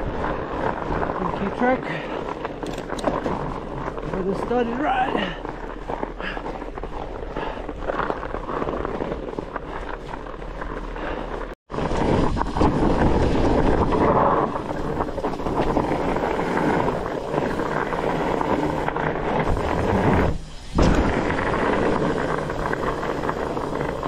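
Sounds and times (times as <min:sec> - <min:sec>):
bike tyres rumbling on snow: 0:00.0 - 0:24.0
wind buffeting microphone: 0:11.7 - 0:24.0.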